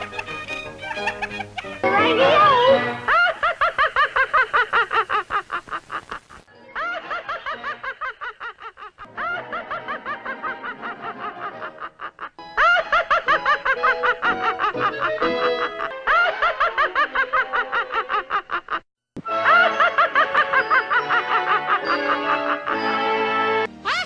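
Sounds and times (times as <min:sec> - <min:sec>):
background music score: 0:00.0 - 0:03.2, 0:09.1 - 0:18.1, 0:19.2 - 0:24.0
high-pitched cartoon laugh: 0:00.0 - 0:23.2.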